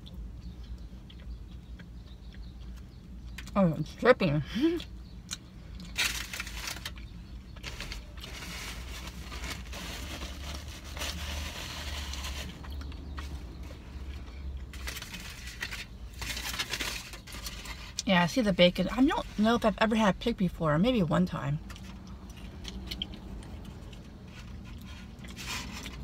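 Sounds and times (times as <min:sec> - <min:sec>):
chewing: 0:00.0 - 0:03.6, 0:21.6 - 0:26.0
low steady rumble: 0:00.0 - 0:26.0
paper wrapper crinkling: 0:05.9 - 0:13.3, 0:14.7 - 0:18.0.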